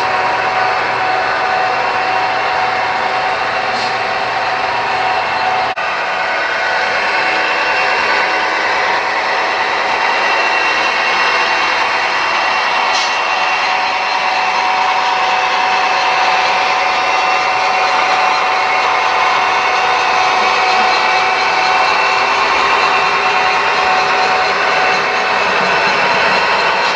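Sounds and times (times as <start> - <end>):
model train motors whirring: 0.0 - 26.9
metal wheels rolling on track: 6.6 - 26.9.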